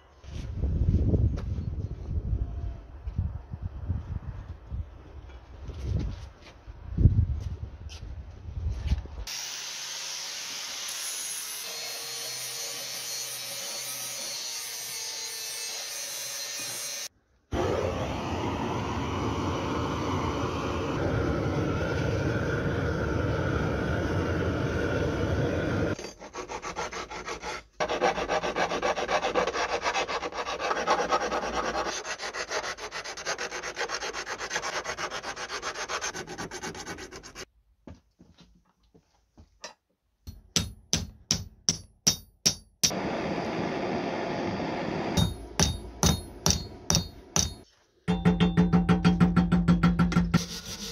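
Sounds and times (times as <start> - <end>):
steel being filed by hand: 10.9 - 17.1, 26.0 - 37.5, 50.3 - 50.9.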